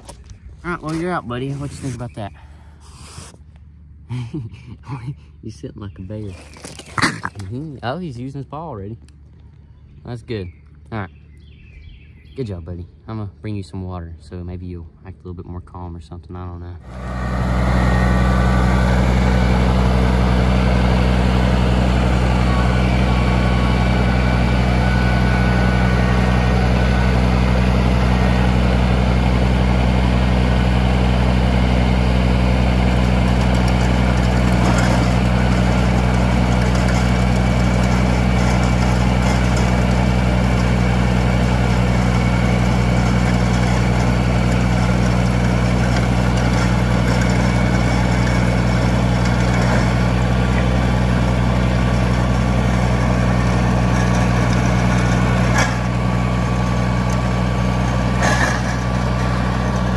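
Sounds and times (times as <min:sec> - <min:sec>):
tractor diesel engine running: 0:00.0 - 0:04.0, 0:16.7 - 0:59.9.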